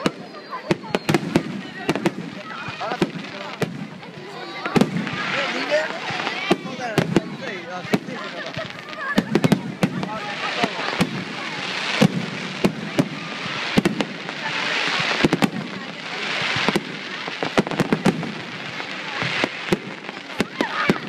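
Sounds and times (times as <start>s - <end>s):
firework crackle: 0.0s - 21.0s.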